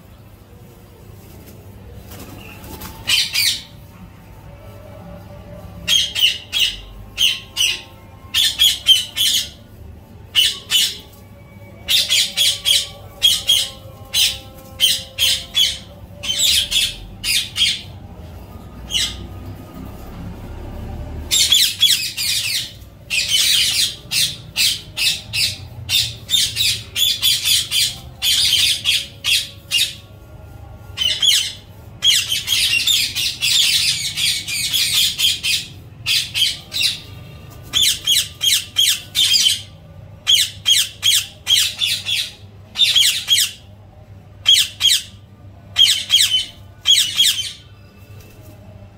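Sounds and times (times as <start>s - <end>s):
parakeets screeching: 2.4s - 3.9s, 5.8s - 9.7s, 10.3s - 18.0s, 18.6s - 30.1s, 31.0s - 43.7s, 44.4s - 48.0s.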